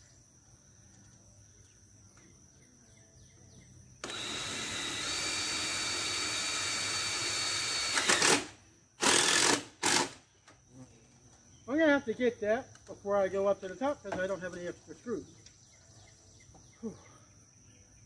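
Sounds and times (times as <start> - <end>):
faint insect chirping: 0.0 - 18.0
cordless drill driving screw: 4.0 - 10.2.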